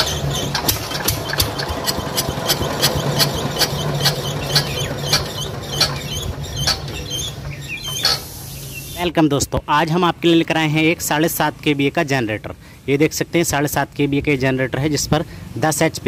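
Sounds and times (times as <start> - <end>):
diesel engine hand-cranked: 0.0 - 9.0.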